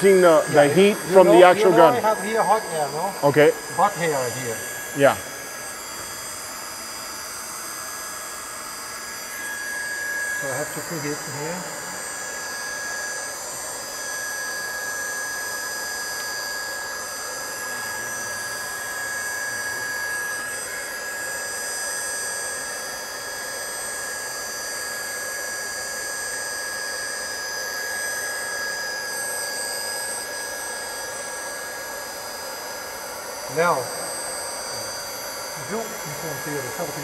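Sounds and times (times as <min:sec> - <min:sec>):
hot air welding gun blowing: 0:00.0 - 0:14.9, 0:33.0 - 0:37.0.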